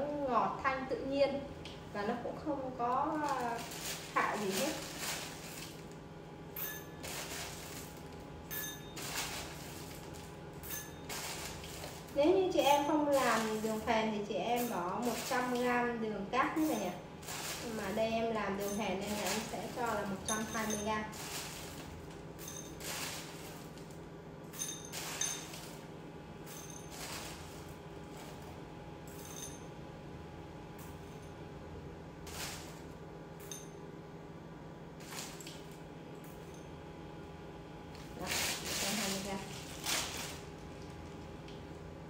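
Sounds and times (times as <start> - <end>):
rock sugar clinking into bowl: 3.2 - 13.9, 14.5 - 15.8, 16.5 - 23.9, 24.5 - 28.4, 29.1 - 29.7, 32.3 - 33.8.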